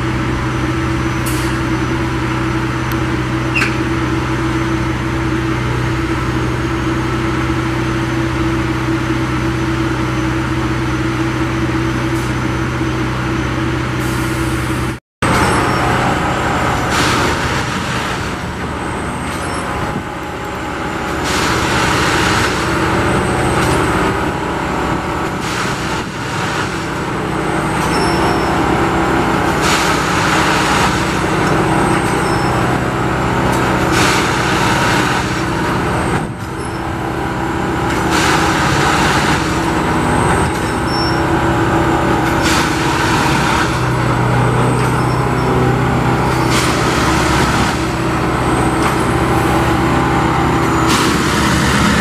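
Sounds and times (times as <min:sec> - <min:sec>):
track machine engine running: 0:00.0 - 0:52.0.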